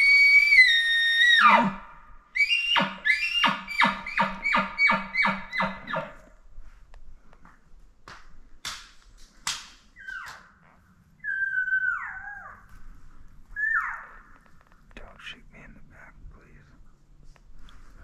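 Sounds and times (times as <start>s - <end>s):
elk mews whistling: 2.4s - 6.1s, 13.6s - 14.3s
sharp snaps: 8.0s - 10.5s.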